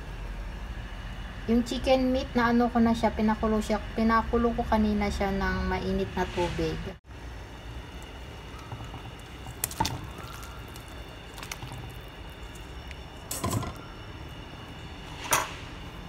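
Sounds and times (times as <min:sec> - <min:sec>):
chicken pieces splashing into soup: 0:08.6 - 0:13.1.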